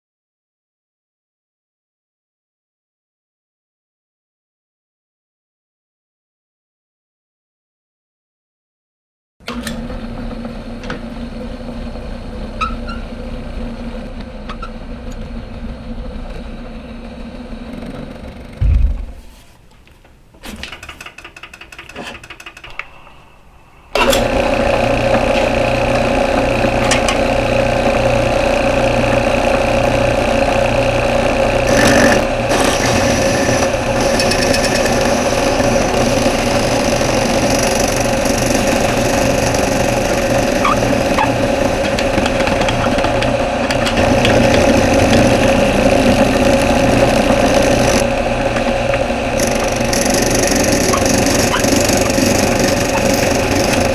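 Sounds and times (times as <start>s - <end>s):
drill press motor running: 23.9s - 53.9s.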